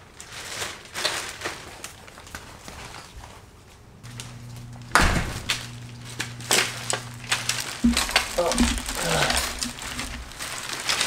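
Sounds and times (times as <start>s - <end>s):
plastic crinkling and rustling: 0.0s - 11.0s
sharp knock: 4.9s - 5.5s.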